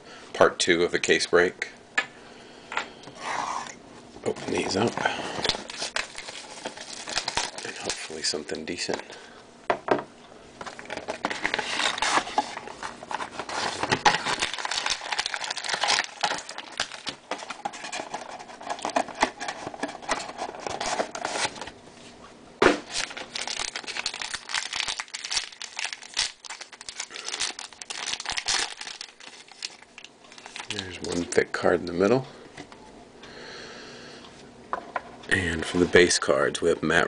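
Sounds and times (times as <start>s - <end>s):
foil wrapper crinkling and tearing: 4.3s - 8.9s, 10.7s - 21.7s, 22.8s - 31.4s.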